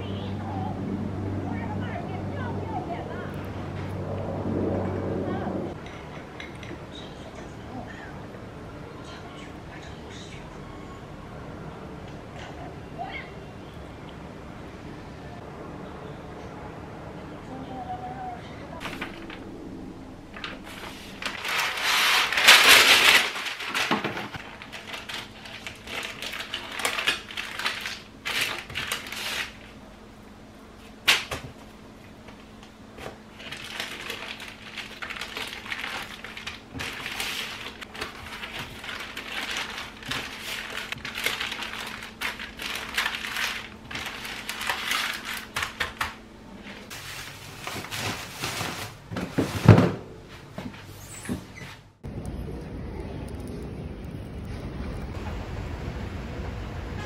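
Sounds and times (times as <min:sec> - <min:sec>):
plastic packaging crinkling: 0:18.8 - 0:19.5, 0:20.3 - 0:29.8, 0:33.0 - 0:46.2.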